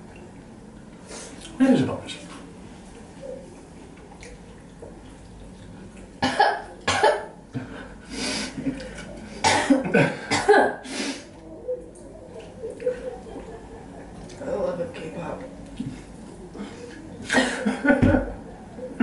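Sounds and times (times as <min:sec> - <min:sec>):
person coughing harshly: 0:06.2 - 0:07.3, 0:09.4 - 0:10.8, 0:17.3 - 0:17.8.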